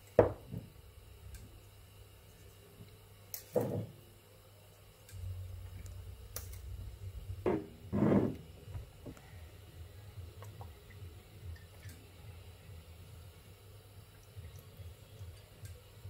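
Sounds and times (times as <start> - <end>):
low hum: 4.0 - 16.0.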